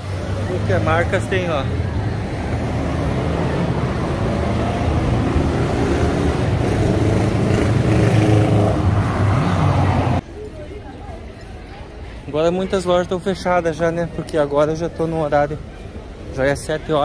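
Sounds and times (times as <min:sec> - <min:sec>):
car and motorcycle engines: 0:00.0 - 0:10.2
tyres rumbling over cobblestones: 0:00.0 - 0:12.0.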